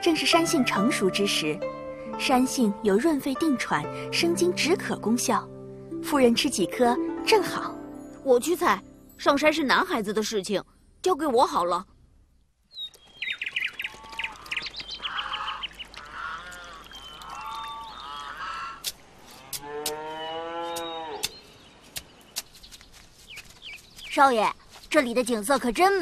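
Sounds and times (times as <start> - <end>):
cow moo: 19.4 - 21.2.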